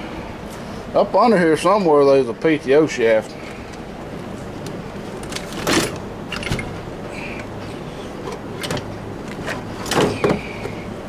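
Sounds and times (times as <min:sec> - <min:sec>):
low steady hum: 0:00.0 - 0:11.0
junk clunking and scraping: 0:03.3 - 0:10.9.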